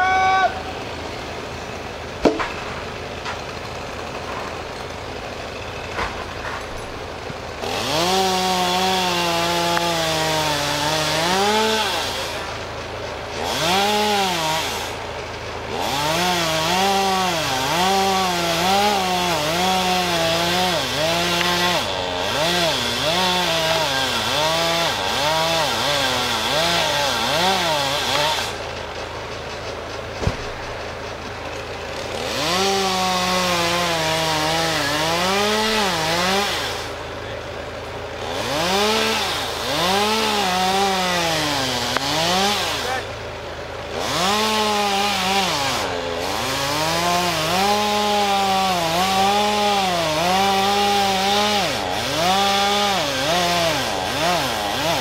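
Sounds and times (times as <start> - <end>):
chainsaw cutting wood: 0.7 - 55.0
log hitting the ground: 2.2 - 3.5, 30.1 - 30.8.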